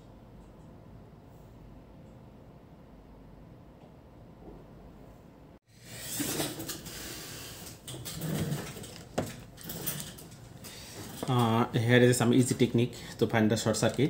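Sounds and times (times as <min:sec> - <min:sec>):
handling noise: 0:07.8 - 0:12.8.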